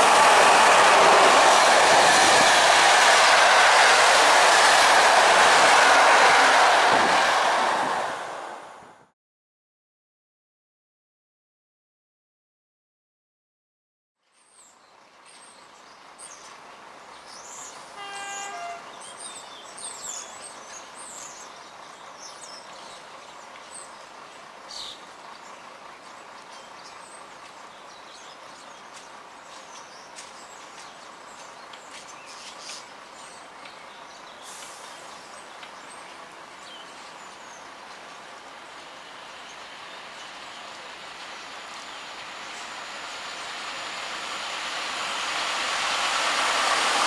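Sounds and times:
birds chirping: 0:14.6 - 0:43.8.

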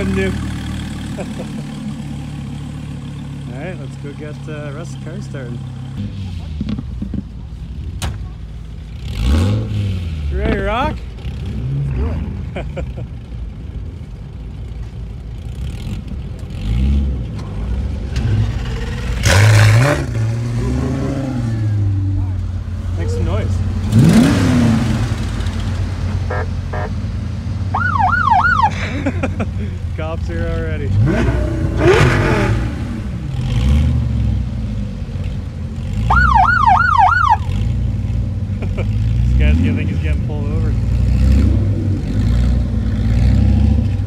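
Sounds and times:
sports car engines idling: 0:00.0 - 0:09.2, 0:12.2 - 0:16.6, 0:21.3 - 0:32.0, 0:32.7 - 0:41.1
car engine revving: 0:08.9 - 0:12.9, 0:15.4 - 0:44.0
electronic siren yelp: 0:26.3 - 0:26.9, 0:27.8 - 0:28.7, 0:36.1 - 0:37.4.

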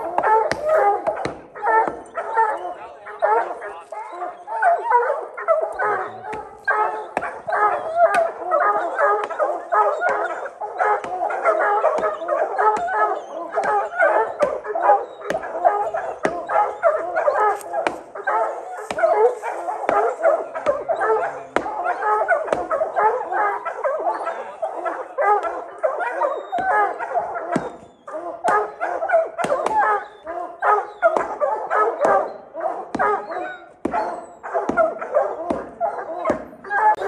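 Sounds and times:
hounds barking and baying: 0:00.0 - 0:37.0.

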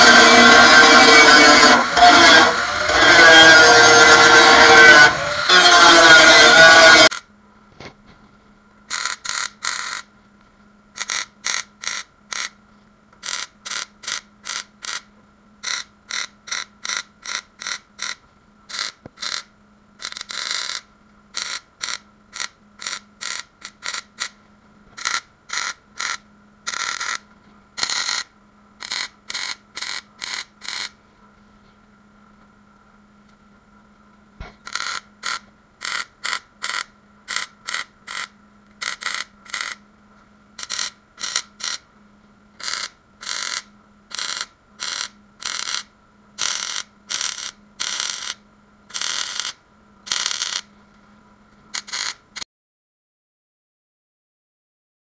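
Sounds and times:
welder bursts: 0:00.0 - 0:07.2, 0:27.8 - 0:30.9, 0:34.6 - 0:39.8, 0:40.6 - 0:41.8, 0:42.6 - 0:50.7, 0:51.7 - 0:52.4
faint steady hum: 0:00.0 - 0:52.4.

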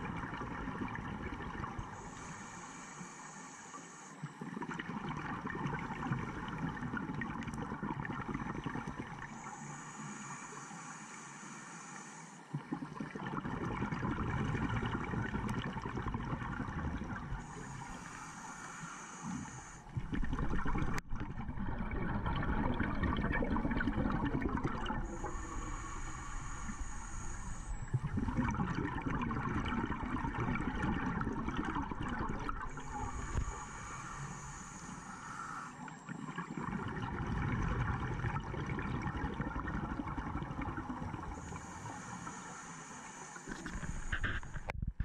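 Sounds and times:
bubbles rumbling and gurgling: 0:00.0 - 0:02.2, 0:04.3 - 0:09.4, 0:12.5 - 0:17.8, 0:19.9 - 0:34.8, 0:36.0 - 0:41.8, 0:43.5 - 0:45.0
hissing regulator inhalations: 0:01.8 - 0:04.6, 0:09.2 - 0:12.7, 0:17.4 - 0:20.0, 0:24.9 - 0:28.1, 0:32.5 - 0:36.5, 0:41.2 - 0:44.7.

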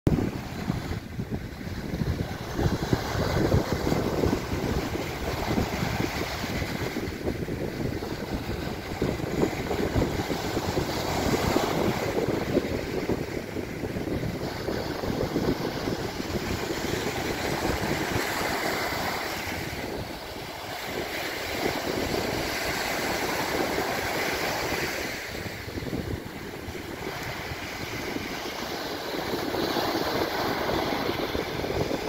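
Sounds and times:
surf breaking on beach: 0:00.1 - 0:32.0
wind buffeting microphone: 0:00.1 - 0:32.0.

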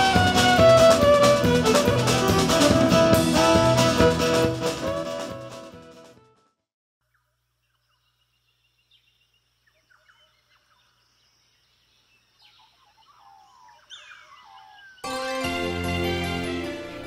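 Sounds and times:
birds chirping and whistling: 0:07.9 - 0:15.1.

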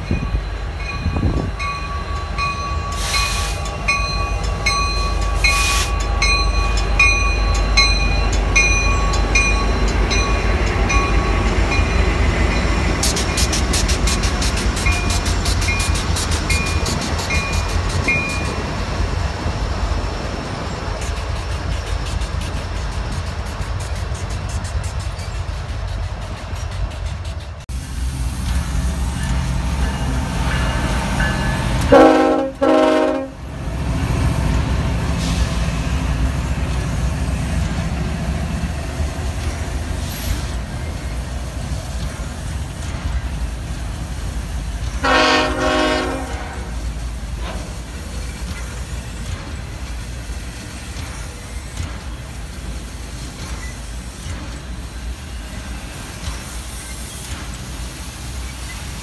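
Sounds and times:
train wheels rumbling on rail: 0:00.0 - 0:59.0
locomotive air horn blasts: 0:31.7 - 0:33.5, 0:45.0 - 0:46.8.

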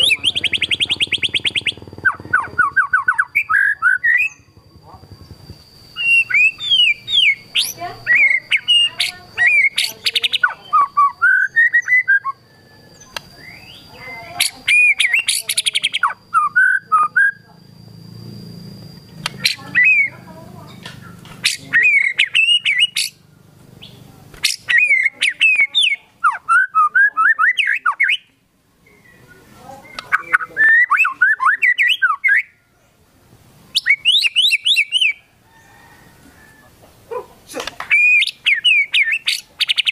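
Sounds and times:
bird singing whistled phrases: 0:00.0 - 0:04.5, 0:05.9 - 0:17.4, 0:19.3 - 0:23.2, 0:23.8 - 0:28.3, 0:28.9 - 0:32.6, 0:33.7 - 0:35.3, 0:37.9 - 0:39.9.

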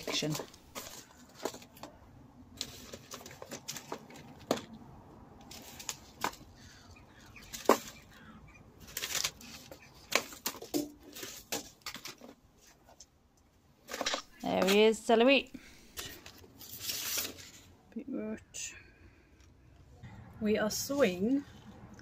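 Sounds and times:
paper seed packets rustling: 0:00.0 - 0:04.8, 0:05.4 - 0:13.1, 0:15.8 - 0:17.8.

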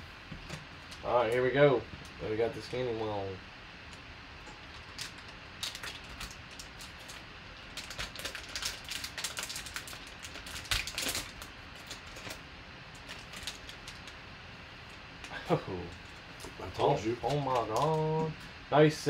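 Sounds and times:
foil wrapper crinkling and tearing: 0:04.6 - 0:14.2.

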